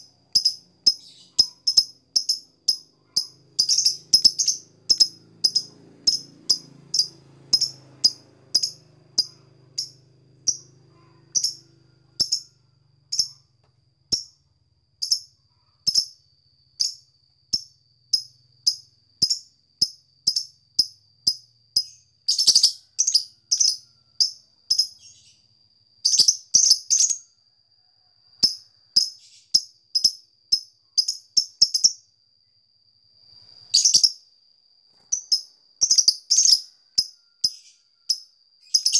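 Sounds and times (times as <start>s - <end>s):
bird sharp high chirps: 0.0s - 12.5s, 21.8s - 23.8s, 24.7s - 25.4s, 26.1s - 27.2s, 33.7s - 34.2s, 34.9s - 36.7s, 38.7s - 38.9s.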